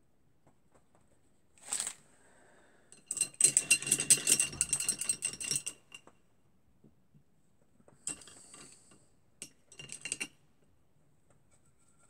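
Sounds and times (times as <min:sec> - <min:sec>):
brush clinking against glass jar: 0:03.0 - 0:06.0, 0:08.1 - 0:10.4.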